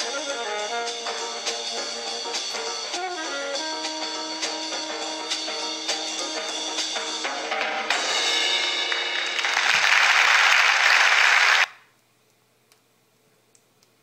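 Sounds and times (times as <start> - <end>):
background music with drums: 0.0 - 10.0
loud cymbal wash: 7.9 - 9.3.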